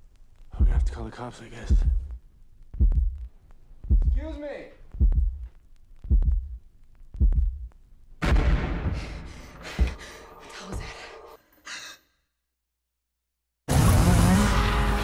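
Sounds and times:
deep heartbeat-like thud: 0.6 - 1.0, 1.7 - 4.3, 4.9 - 6.6, 7.2 - 10.1
loud crashing hit: 8.2 - 9.3.

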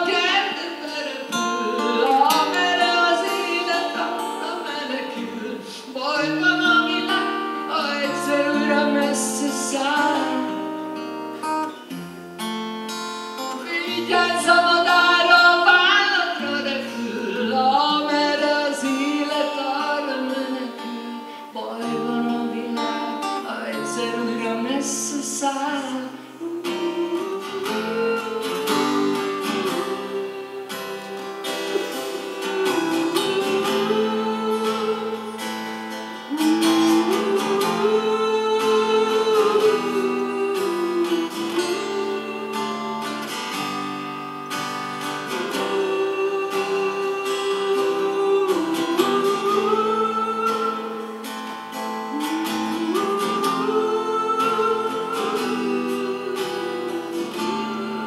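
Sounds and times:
man singing wordless melody: 0.0 - 10.8, 13.6 - 35.6, 36.2 - 43.3, 52.1 - 58.0
strummed acoustic guitar: 0.0 - 58.0.

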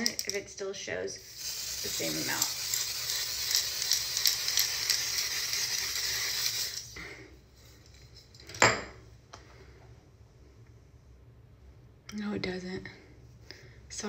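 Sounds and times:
face spray hissing: 1.2 - 7.0.

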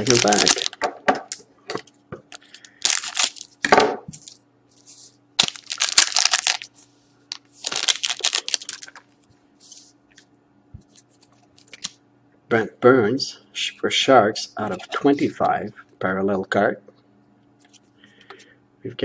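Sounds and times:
foil wrapper crinkling: 0.0 - 0.8, 2.3 - 3.6, 4.2 - 9.2.

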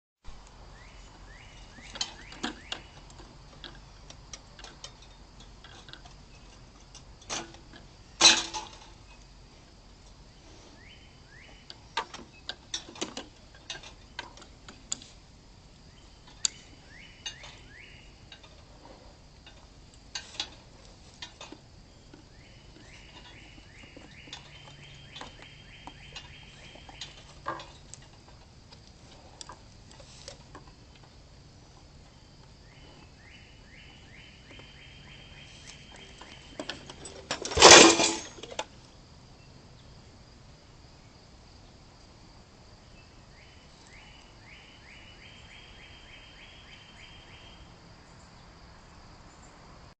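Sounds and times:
bird singing falling notes: 0.7 - 3.3, 15.9 - 18.2, 22.0 - 27.8.

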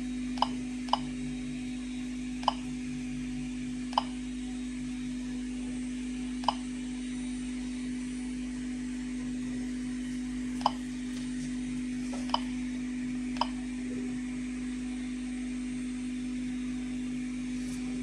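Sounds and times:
steady low hum: 0.0 - 18.0
geiger counter clicking: 2.4 - 2.7, 3.9 - 4.2.

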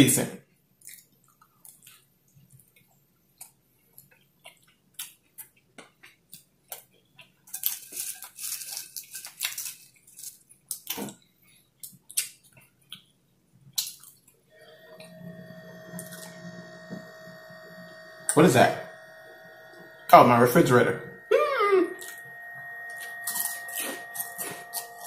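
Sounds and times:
person chewing with wet smacks: 0.8 - 8.4, 10.7 - 14.4
potato chips crunching: 4.5 - 11.2.

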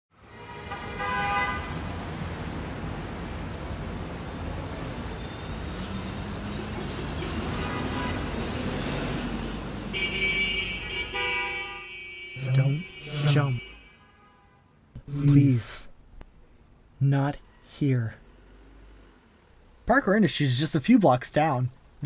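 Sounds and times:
rumble of passing cars: 0.2 - 11.5, 16.3 - 19.9
car horn honking: 0.3 - 1.8, 7.4 - 8.3, 9.9 - 14.7.

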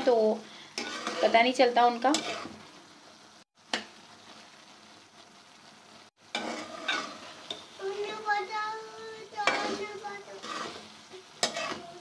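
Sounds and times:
food sizzling in a pan: 0.0 - 12.0
spoon scraping a pan: 0.7 - 2.7, 6.3 - 8.2, 9.2 - 12.0.

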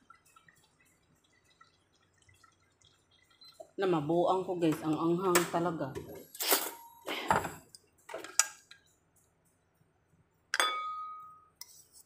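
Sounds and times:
utensil clinking on steel pot: 10.5 - 11.9.

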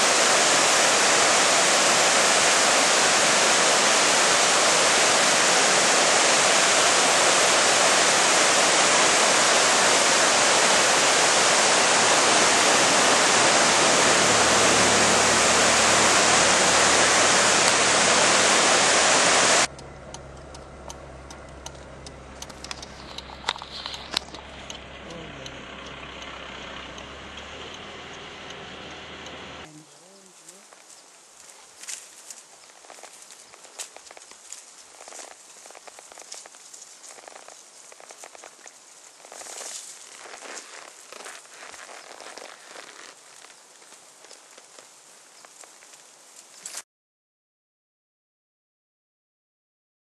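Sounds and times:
low hum: 0.0 - 29.9
water rushing down stream: 0.0 - 46.8
scattered clicks: 19.7 - 28.6.

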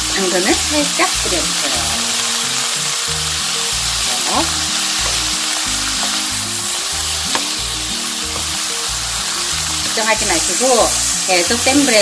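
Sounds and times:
vegetables sizzling in a pan: 0.0 - 12.0
wooden spatula stirring: 4.0 - 10.4.

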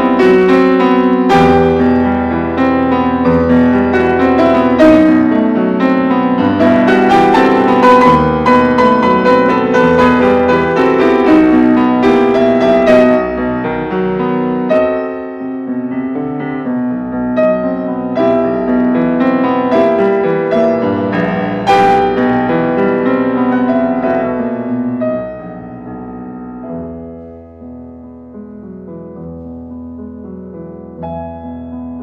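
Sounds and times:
piano music: 0.0 - 32.0.

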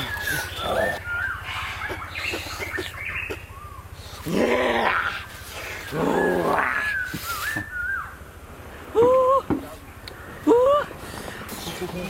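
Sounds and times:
growling roars: 4.2 - 7.0
short whistled call: 6.8 - 8.2.

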